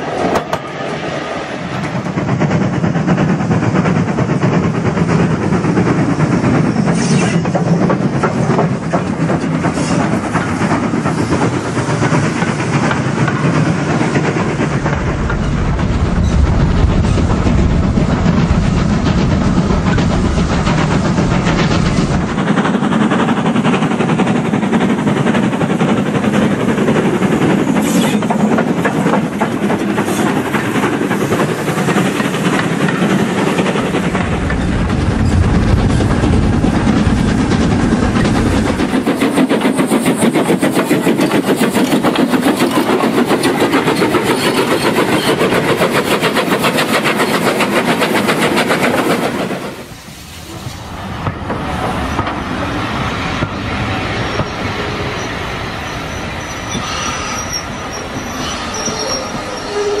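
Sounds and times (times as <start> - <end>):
model train wheels clattering on rails: 1.8 - 15.5, 37.2 - 49.8
low rumble: 14.6 - 22.4, 33.6 - 39.0.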